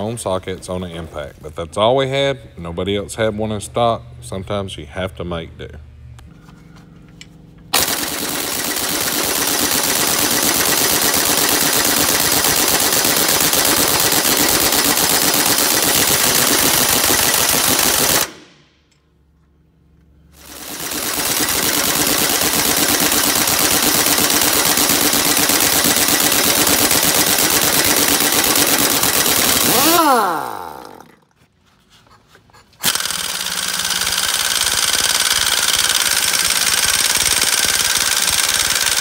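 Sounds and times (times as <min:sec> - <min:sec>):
impact wrench hammering: 0:07.7 - 0:19.1, 0:20.4 - 0:31.2, 0:32.8 - 0:39.0.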